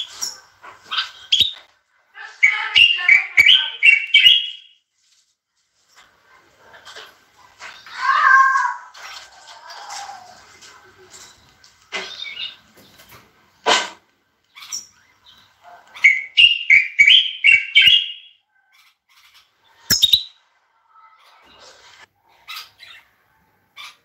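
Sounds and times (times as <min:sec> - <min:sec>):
bulbuls calling: 0:00.0 - 0:04.7, 0:14.6 - 0:20.4.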